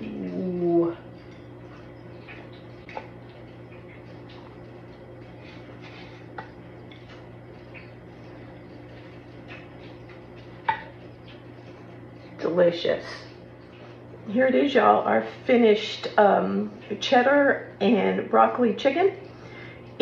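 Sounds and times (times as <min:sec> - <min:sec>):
low hum: 0:00.0 - 0:18.5.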